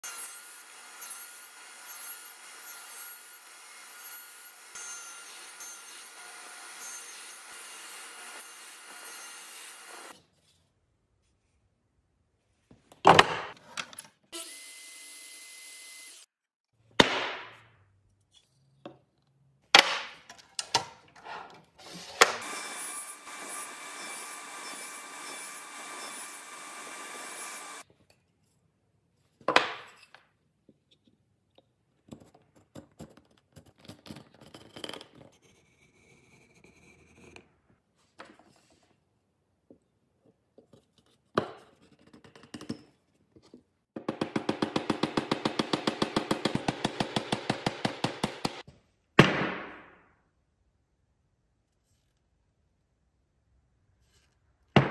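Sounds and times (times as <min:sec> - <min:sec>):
saw cutting wood: 0:00.0 - 0:10.2, 0:14.4 - 0:16.3, 0:21.8 - 0:27.8.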